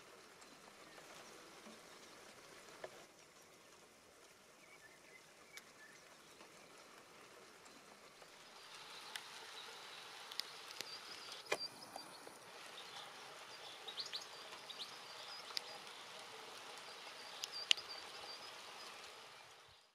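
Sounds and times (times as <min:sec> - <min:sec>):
songbird chirping: 0:00.0 - 0:19.9
steady hiss: 0:00.0 - 0:19.9
sharp ticks: 0:14.0 - 0:19.2.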